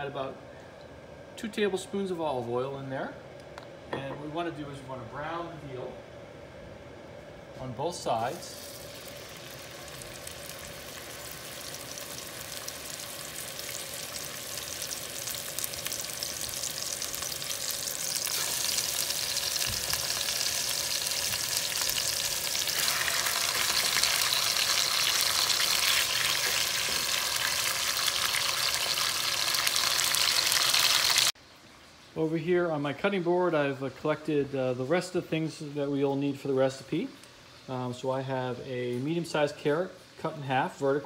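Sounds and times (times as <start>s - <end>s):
meat searing in hot oil: 8.1s - 31.4s.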